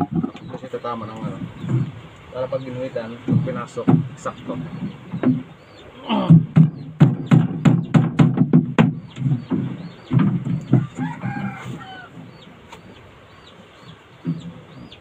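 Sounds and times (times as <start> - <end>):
sharp knocks: 0.0 - 0.6, 3.1 - 11.6, 14.2 - 15.0
rooster crowing: 10.7 - 12.2.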